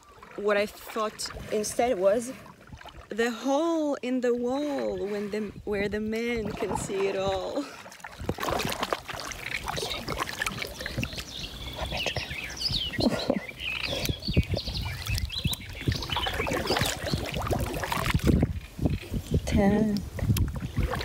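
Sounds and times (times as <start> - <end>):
paddle splashing in water: 0.0 - 3.4, 6.2 - 19.1, 20.4 - 21.0
water dripping: 6.2 - 18.6
birds calling: 9.2 - 19.2.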